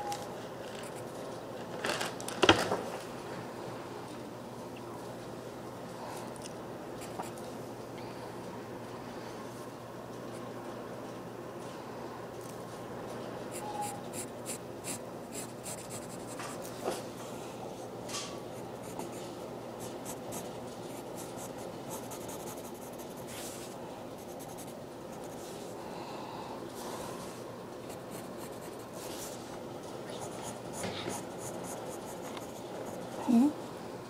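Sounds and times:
pen scratching on paper: 0:13.8 - 0:16.6, 0:19.8 - 0:23.3, 0:30.2 - 0:33.0.

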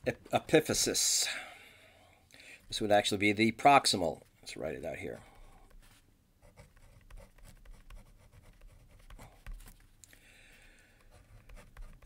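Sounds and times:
marker pen scratching on paper: 0:05.6 - 0:09.8, 0:11.0 - 0:12.0.

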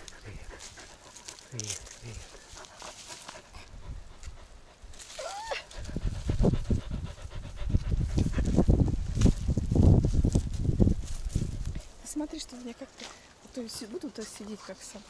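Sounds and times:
dog panting: 0:00.0 - 0:05.0, 0:05.6 - 0:09.0.

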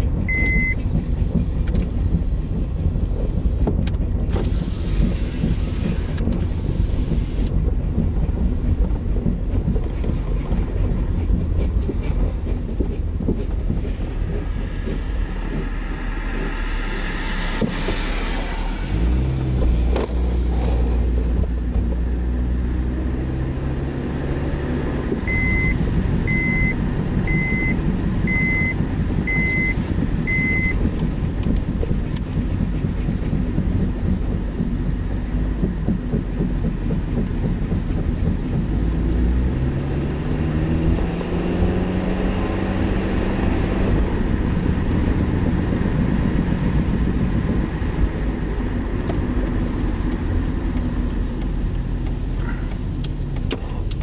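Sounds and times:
car engine and road noise: 0:00.0 - 0:54.0
short high beeps: 0:00.3 - 0:00.8, 0:25.3 - 0:28.7, 0:29.3 - 0:30.8.

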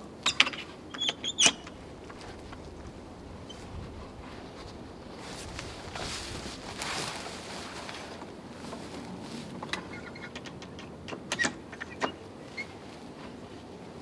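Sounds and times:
canvas rustling: 0:02.2 - 0:09.6
metal frame clicking and knocking: 0:09.7 - 0:12.2.

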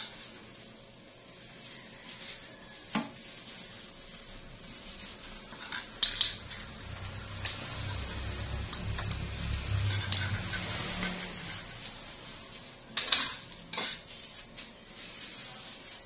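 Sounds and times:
kitchen items clinking: 0:04.7 - 0:16.0.

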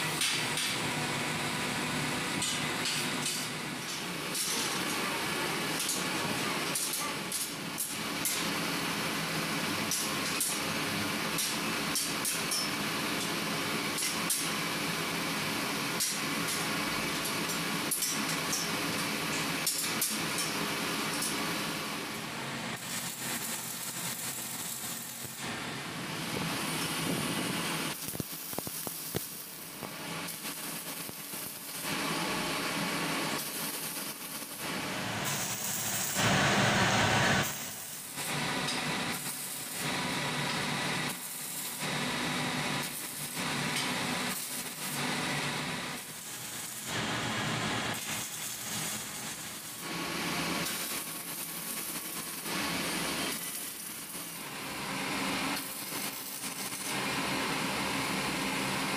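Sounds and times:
arc welding crackling sizzle: 0:02.2 - 0:58.9.

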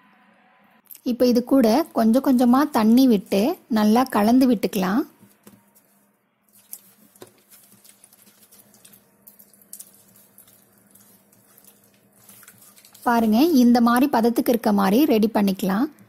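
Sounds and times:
hand patting wet batter: 0:04.8 - 0:14.4.

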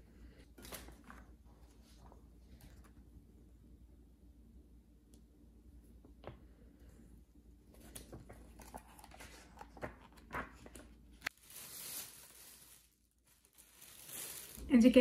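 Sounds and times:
packaging rustling: 0:07.8 - 0:15.0
plastic bag rustle: 0:08.5 - 0:15.0.

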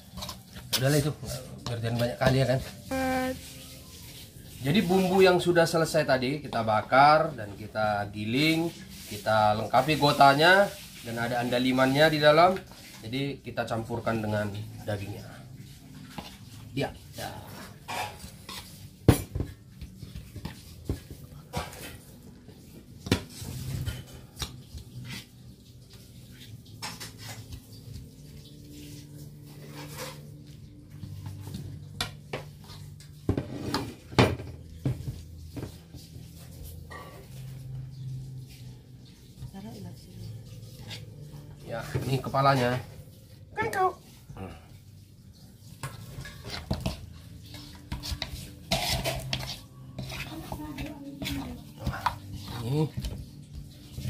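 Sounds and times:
metal spoon scraping a pan: 0:00.0 - 0:07.6, 0:08.2 - 0:44.3, 0:45.2 - 0:54.0
metal spoon scraping a wok: 0:17.1 - 0:19.1, 0:29.1 - 0:30.5, 0:45.7 - 0:54.0.

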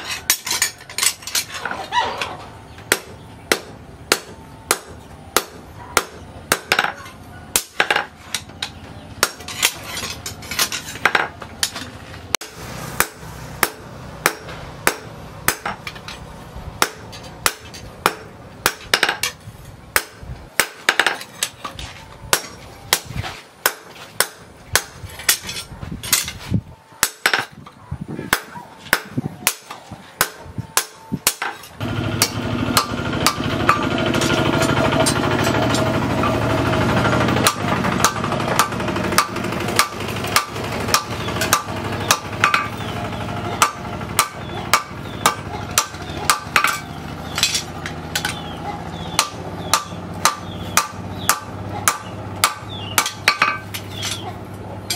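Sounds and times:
hammer striking steel on anvil: 0:02.9 - 0:08.5, 0:09.2 - 0:11.8, 0:12.4 - 0:16.2, 0:16.8 - 0:19.4, 0:20.0 - 0:21.6, 0:28.3 - 0:36.4, 0:37.4 - 0:42.9, 0:43.5 - 0:54.9
loud steady noise: 0:11.0 - 0:21.5, 0:28.3 - 0:54.9.

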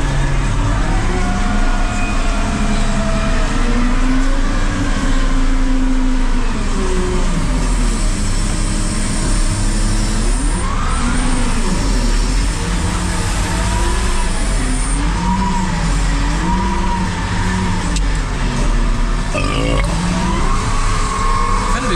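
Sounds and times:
wheel loader diesel engine under load: 0:00.0 - 0:21.9.

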